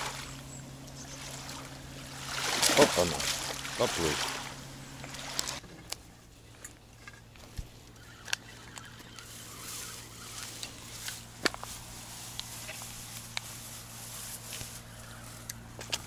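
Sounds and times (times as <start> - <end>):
low steady hum: 0.0 - 16.0
faint clicks and rustles: 5.1 - 16.0.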